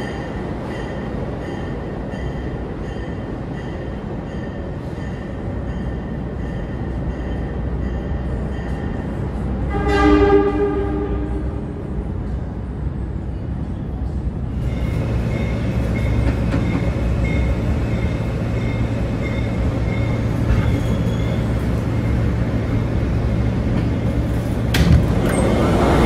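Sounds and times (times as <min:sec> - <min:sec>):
subway train wheels rumbling: 0:00.0 - 0:26.0
high wheel squeaks: 0:19.4 - 0:22.1.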